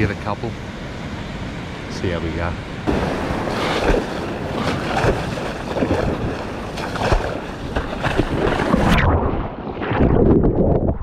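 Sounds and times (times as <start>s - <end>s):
wave washing over camera: 2.8s - 11.0s
seawater sloshing and splashing: 2.9s - 10.3s.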